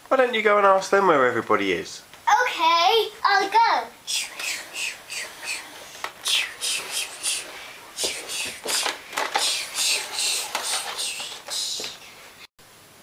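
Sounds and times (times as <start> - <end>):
toy train hissing puffs: 4.1 - 12.1.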